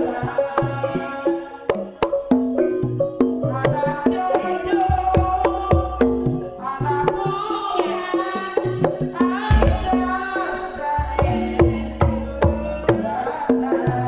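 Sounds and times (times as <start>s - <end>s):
hand drum rhythm: 4.9s - 14.0s
deep bass: 9.5s - 10.3s
high wavering melody: 9.5s - 10.7s
struck pitched percussion: 9.5s - 11.9s.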